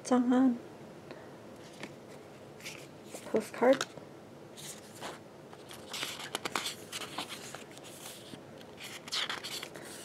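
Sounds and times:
paper rustling and sliding: 1.6 - 3.8, 4.6 - 10.0.

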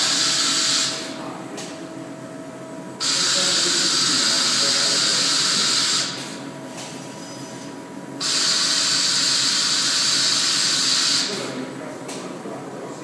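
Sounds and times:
faint steady machine hum: 0.0 - 13.0
loud welding hiss: 8.2 - 11.3.

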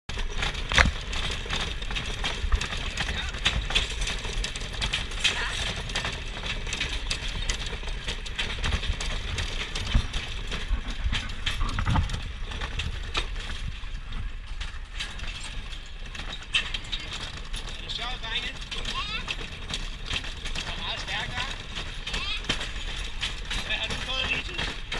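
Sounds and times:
clicks and knocks: 0.1 - 13.7
carriage clattering and rattling: 0.1 - 24.9.

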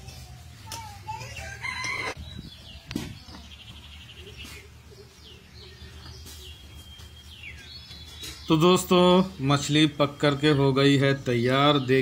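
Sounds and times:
rooster crowing: 1.4 - 2.2.

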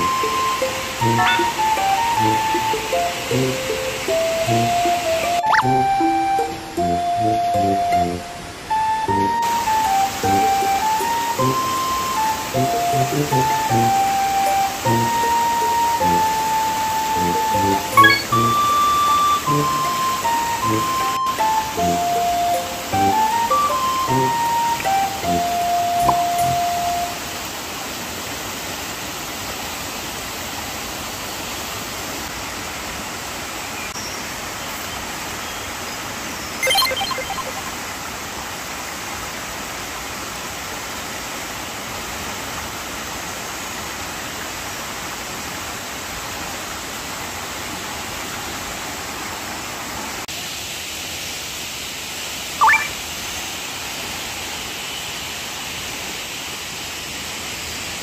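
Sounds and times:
pulsed call: 0.0 - 27.2
waterfall rushing: 0.0 - 35.4, 36.6 - 58.0.

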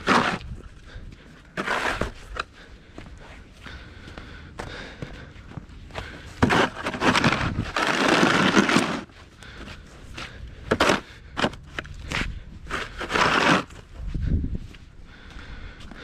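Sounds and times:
snow shovel scraping pavement: 0.0 - 0.6, 1.5 - 2.4, 6.4 - 9.1, 10.7 - 11.6, 12.7 - 13.8
snow crunching: 6.5 - 9.1.

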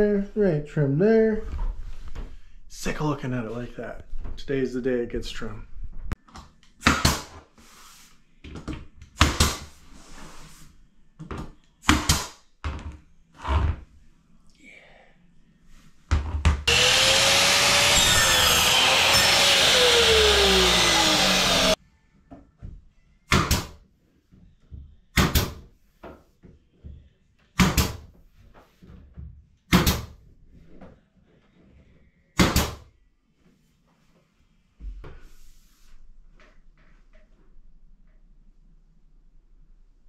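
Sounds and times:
air compressor running: 16.7 - 21.8
pneumatic nail gun firing: 16.7 - 21.8.

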